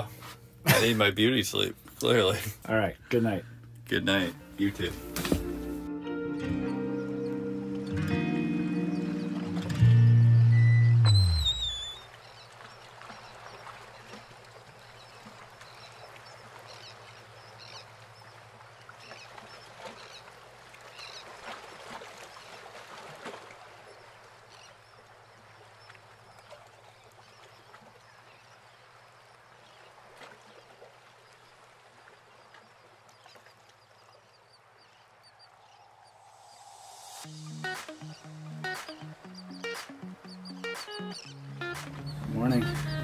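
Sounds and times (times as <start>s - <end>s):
short bird calls: 10.9s - 14.2s.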